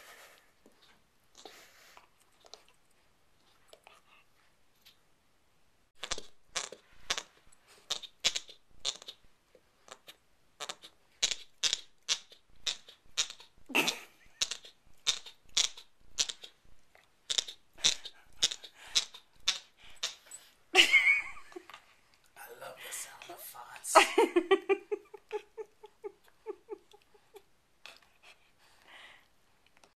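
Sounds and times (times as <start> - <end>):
puppy teeth chewing toy: 6.0 - 20.6.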